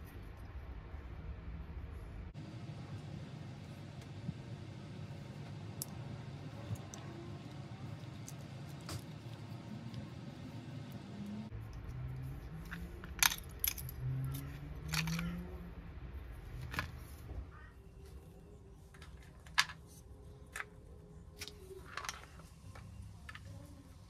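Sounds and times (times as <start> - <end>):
faint low hum: 0.0 - 24.0
small metal parts clicking: 11.7 - 15.5.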